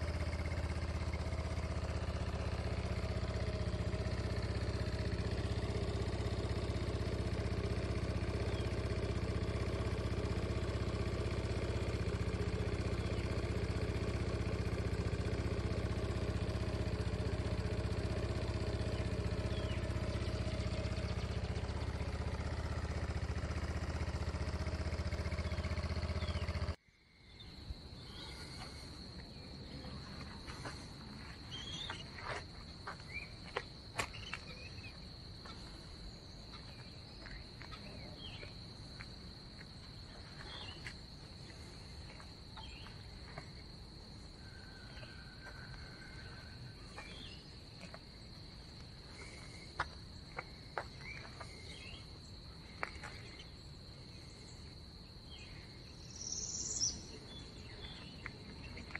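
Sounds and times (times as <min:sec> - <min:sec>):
scooter engine idling: 0:00.0 - 0:26.8, 0:27.7 - 0:58.9
high-pitched insect trill: 0:00.0 - 0:58.9
bird chirps: 0:08.3 - 0:08.9, 0:12.7 - 0:13.5, 0:18.3 - 0:30.8, 0:31.4 - 0:32.4, 0:33.0 - 0:38.6, 0:40.0 - 0:41.0, 0:42.5 - 0:43.4, 0:44.4 - 0:47.9, 0:50.2 - 0:58.9.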